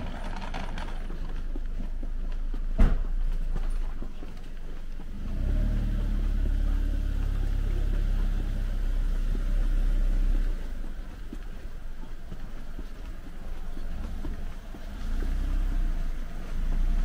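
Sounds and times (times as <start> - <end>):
vehicle engine passing by: 5.0 - 11.4.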